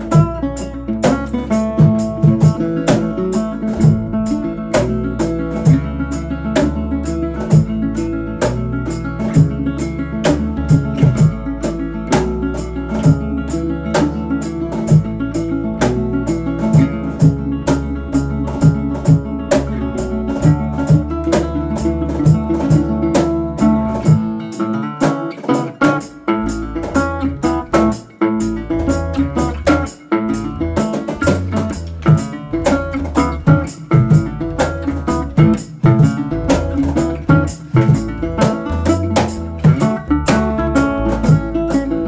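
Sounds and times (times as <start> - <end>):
acoustic guitar: 0.0 - 42.0
bass guitar: 0.0 - 42.0
cajon beat: 0.0 - 42.0
resonator guitar fingerpicked: 0.0 - 42.0.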